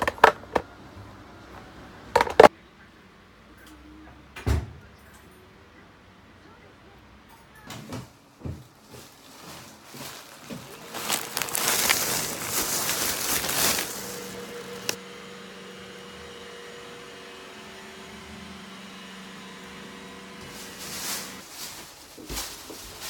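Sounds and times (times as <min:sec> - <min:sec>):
steady mechanical hum: 0:08.1 - 0:23.0
plastic bags rustling: 0:08.4 - 0:15.0, 0:20.4 - 0:23.0.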